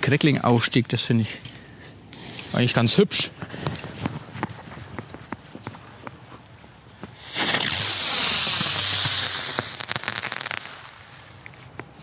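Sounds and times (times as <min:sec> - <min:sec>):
firework hissing: 0:06.8 - 0:11.4
firework crackling: 0:06.8 - 0:11.5.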